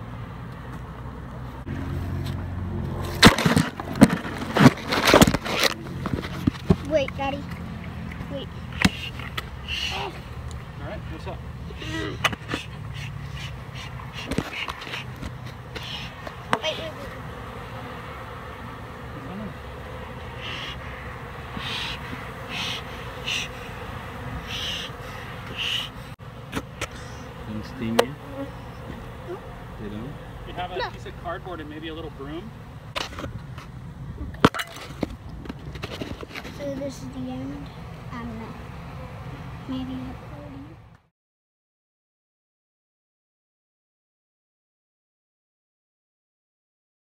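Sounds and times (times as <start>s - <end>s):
bees buzzing: 0.0s - 34.1s, 34.7s - 41.0s.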